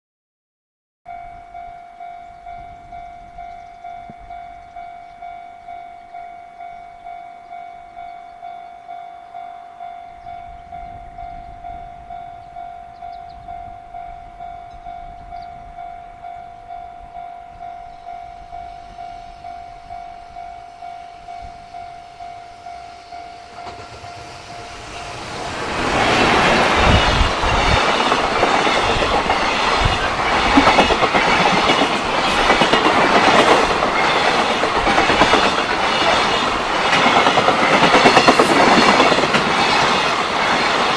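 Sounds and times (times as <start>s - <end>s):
level-crossing warning bell: 1.1s - 40.9s.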